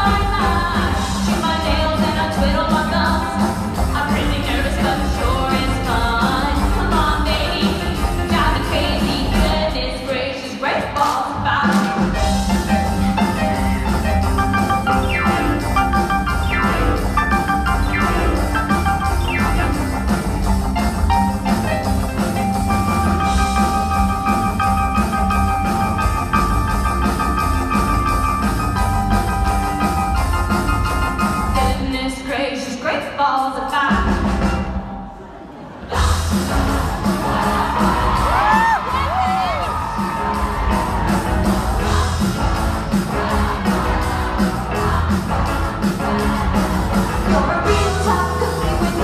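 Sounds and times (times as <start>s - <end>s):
music with steady drum beat: 0.0s - 9.8s, 11.0s - 32.0s, 35.9s - 49.0s
group of voices singing: 35.6s - 39.1s, 39.8s - 49.0s.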